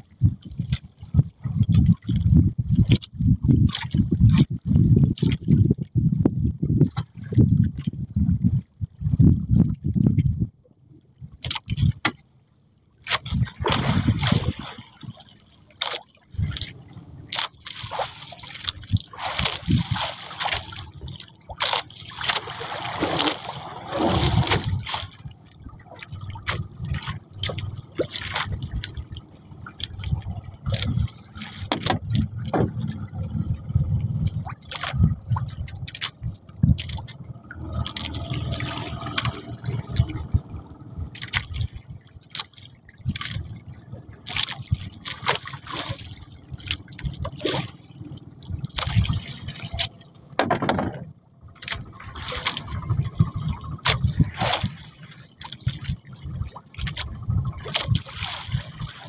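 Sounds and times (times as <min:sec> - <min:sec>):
water splashing against boat: 0:00.0 - 0:59.0
knocks and clicks: 0:50.4 - 0:51.8.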